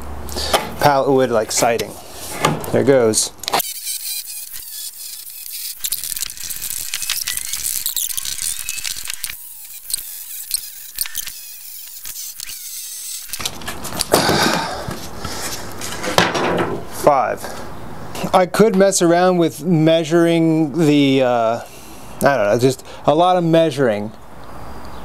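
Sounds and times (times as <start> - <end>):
reciprocating saw cutting nails: 3.4 - 15.8
wood slat rattling: 15.9 - 16.8.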